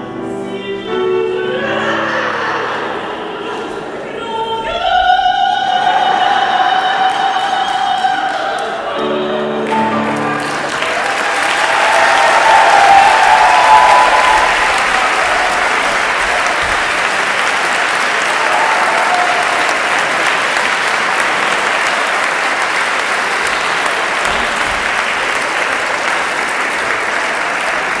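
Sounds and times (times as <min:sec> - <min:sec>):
audience applauding: 0:09.6 - 0:28.0.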